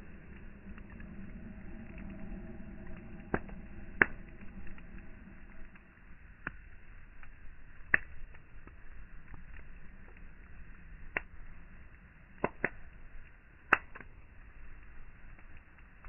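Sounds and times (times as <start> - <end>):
campfire crackling: 0.0 - 16.0
sharp fire pops: 2.8 - 5.8, 6.4 - 16.0.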